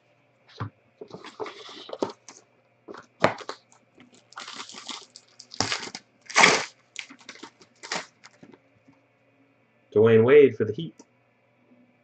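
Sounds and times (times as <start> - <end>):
cardboard packaging rustling: 1.0 - 8.6.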